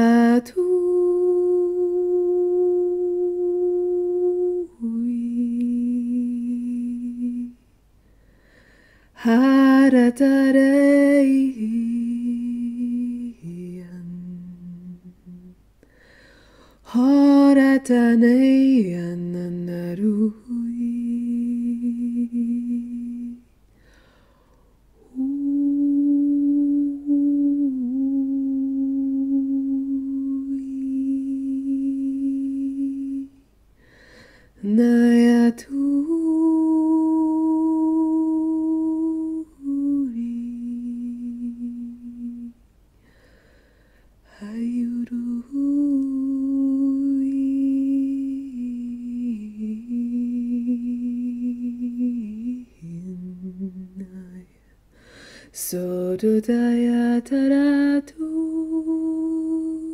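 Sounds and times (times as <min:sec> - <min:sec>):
woman humming held notes: 0:00.0 - 0:07.6, 0:25.0 - 0:33.4.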